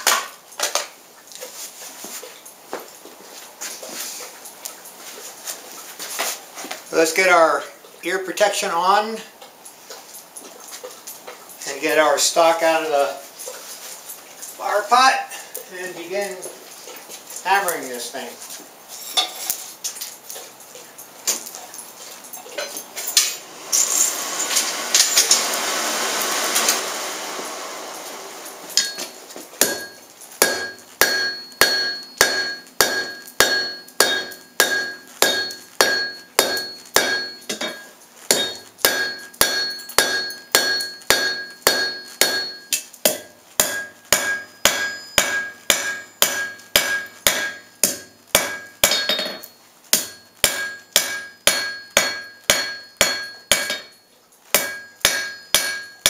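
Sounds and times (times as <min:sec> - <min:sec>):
rushing noise: 0:23.4 - 0:29.0
hammer striking steel on anvil: 0:28.0 - 0:56.0.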